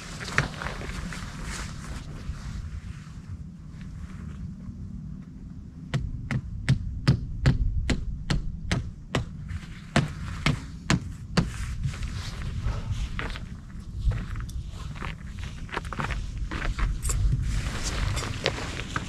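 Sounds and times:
low steady rumble: 0.0s - 19.0s
footsteps clicking on trail: 11.4s - 19.0s.

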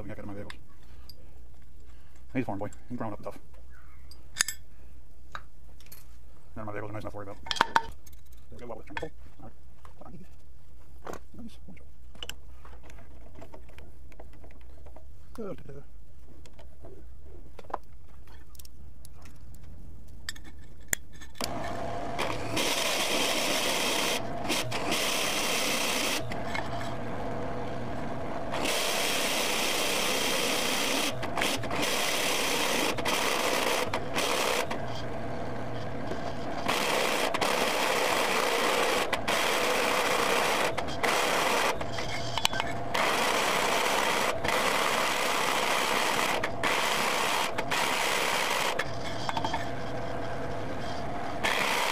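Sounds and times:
drill bit cutting steel: 21.4s - 27.0s, 28.5s - 35.1s, 36.5s - 49.4s, 50.8s - 51.9s
milling machine hum: 21.4s - 41.9s, 42.8s - 51.9s.

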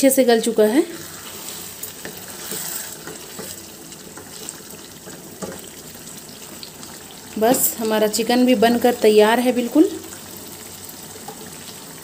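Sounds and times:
curry bubbling and sizzling in pan: 0.3s - 12.0s
spatula scraping pan: 0.8s - 5.9s.

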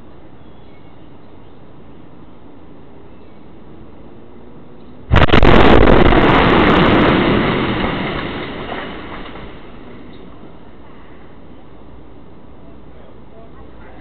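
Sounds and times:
house explosion blast: 5.1s - 9.8s
explosion crackles: 5.1s - 10.1s
explosion rumble: 5.1s - 10.1s.

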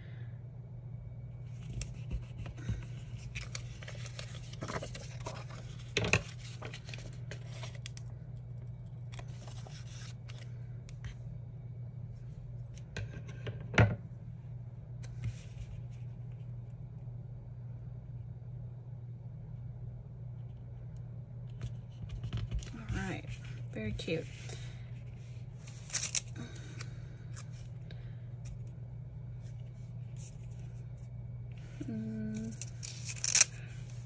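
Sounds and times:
steady low hum: 0.0s - 34.0s
paper rustling: 1.5s - 8.0s, 9.0s - 11.2s, 25.0s - 27.7s, 32.4s - 34.0s.

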